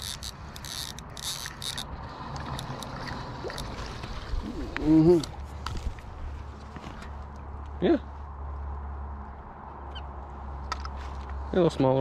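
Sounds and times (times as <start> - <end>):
fishing reel cranking: 0.0 - 3.9
water splashing: 1.9 - 5.5.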